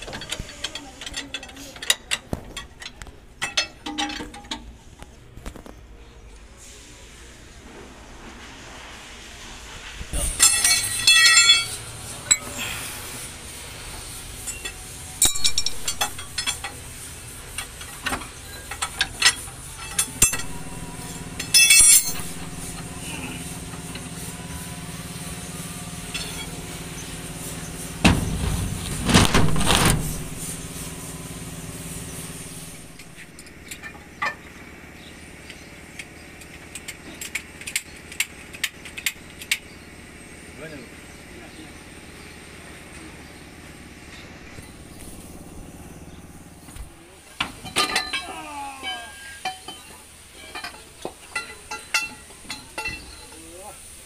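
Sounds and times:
metal parts clanking: 0.0 - 4.8, 10.2 - 12.6, 14.4 - 25.3, 25.9 - 26.9, 28.0 - 30.8, 32.1 - 34.5, 47.4 - 53.5
mechanical hum: 0.0 - 54.0.

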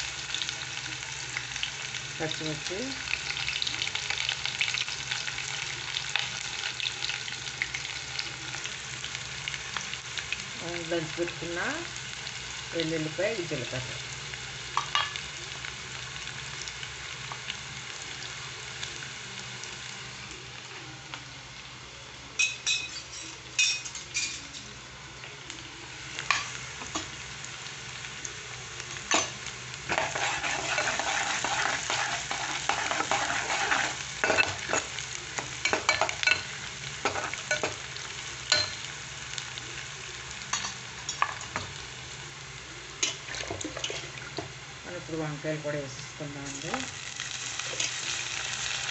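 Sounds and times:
food sizzling in hot oil: 0.0 - 48.9
stirring clicks and scrapes on pan: 29.9 - 36.4.

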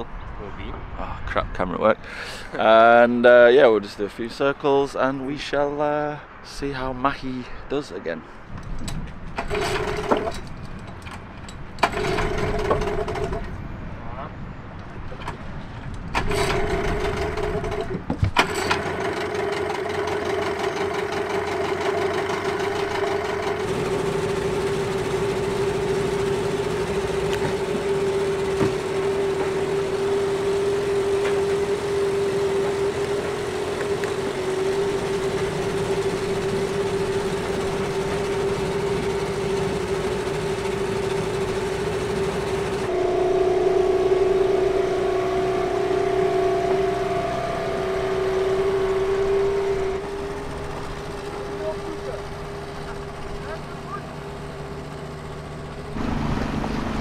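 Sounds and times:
outboard motor running: 9.4 - 10.5, 11.8 - 13.5, 16.2 - 57.0.

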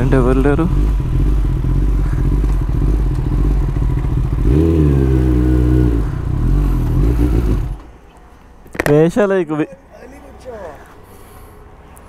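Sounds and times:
motorcycle engine running: 0.0 - 7.8.

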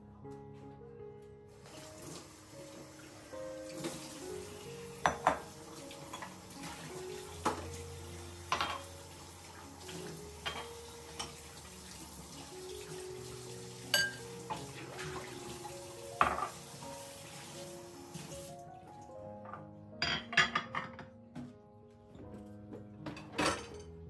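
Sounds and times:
soft background music: 0.0 - 24.0
kitchen tap running: 1.6 - 18.6
glasses clinking against sink: 5.0 - 5.5, 8.5 - 9.0, 10.4 - 11.4, 13.9 - 14.6, 16.2 - 16.6, 19.4 - 21.0.

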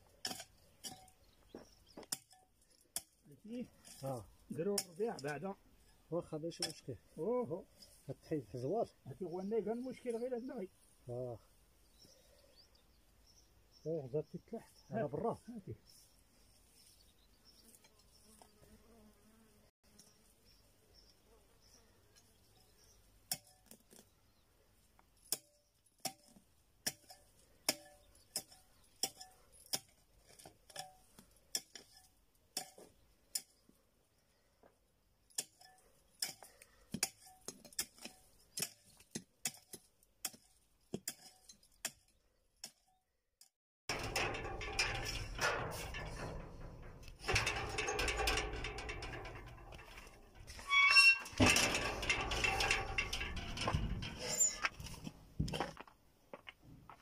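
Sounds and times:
hoe striking stony soil: 0.0 - 5.4, 23.3 - 24.1, 25.2 - 33.6, 35.3 - 42.8, 43.9 - 55.8.

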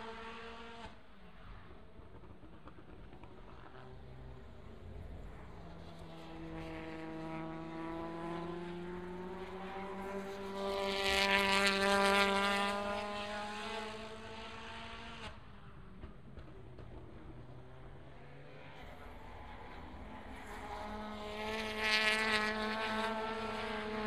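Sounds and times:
race car engine accelerating: 4.2 - 24.0.

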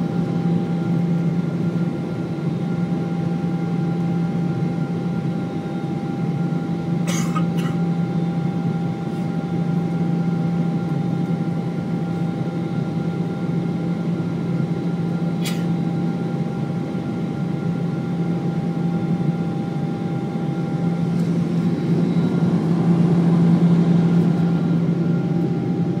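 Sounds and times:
jet engines and airflow rushing: 0.0 - 26.0
low hum: 18.8 - 26.0.

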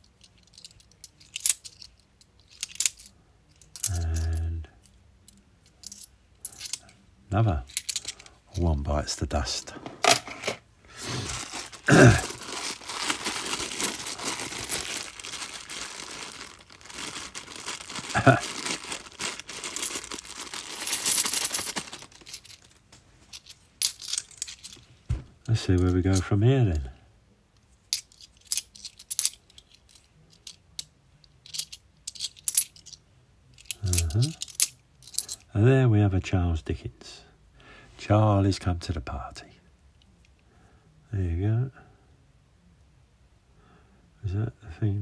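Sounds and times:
coins clicking together: 0.1 - 4.4, 27.9 - 33.0, 33.6 - 35.4
plastic bag crinkling and tearing: 10.9 - 22.8.

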